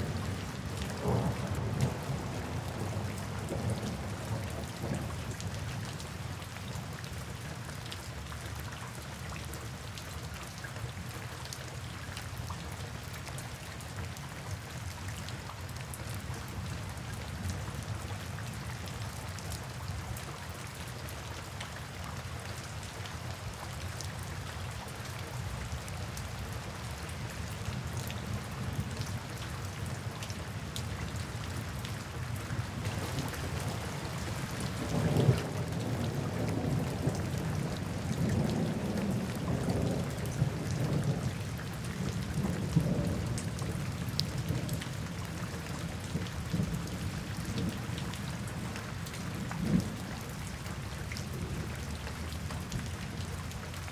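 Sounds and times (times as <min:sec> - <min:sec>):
low rumble of thunder: 0:00.0 - 0:06.3, 0:32.4 - 0:53.3
steady rain falling: 0:00.0 - 0:53.9.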